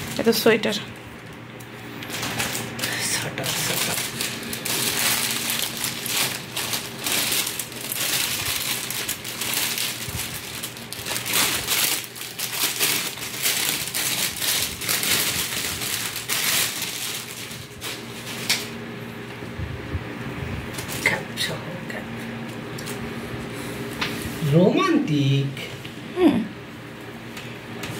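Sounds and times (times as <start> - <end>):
plastic bags crinkling: 0.0 - 18.8, 20.7 - 21.2.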